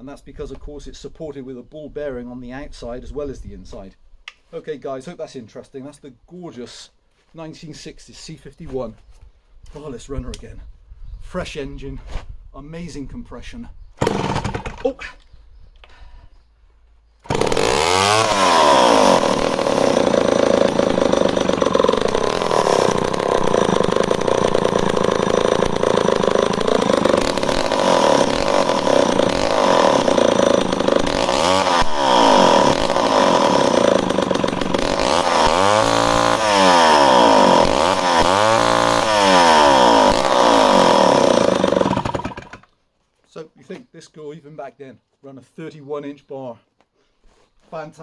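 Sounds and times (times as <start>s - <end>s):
chainsaw revving: 14.0s - 15.0s, 17.2s - 42.7s.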